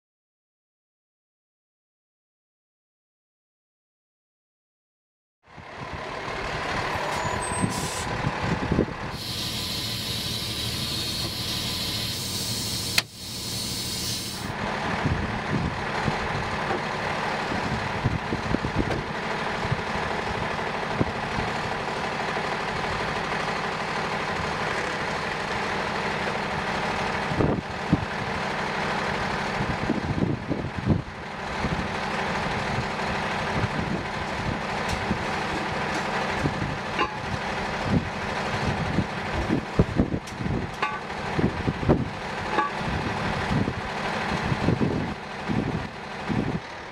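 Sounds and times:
diesel engine idling: 5.5 - 46.9
air brake hiss: 7.2 - 8.1, 9.2 - 14.5.

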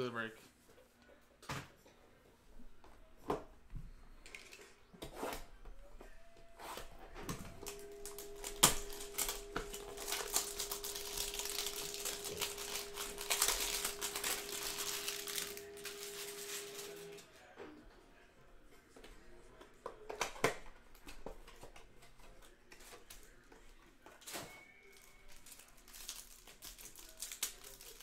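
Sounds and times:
shrink-wrap tearing and crinkling: 7.6 - 17.2, 24.9 - 28.0.

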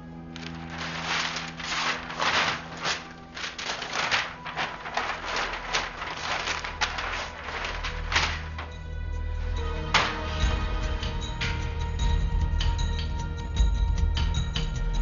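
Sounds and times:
rustling: 0.2 - 8.9
paper tearing: 0.3 - 8.7
objects clattering on the floor: 9.9 - 10.4.

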